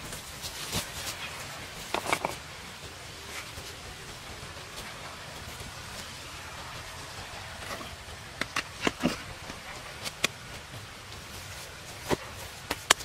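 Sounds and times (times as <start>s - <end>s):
steady outdoor hiss: 0.0s - 13.0s
stone knocking and scraping: 1.9s - 2.4s, 7.6s - 10.4s.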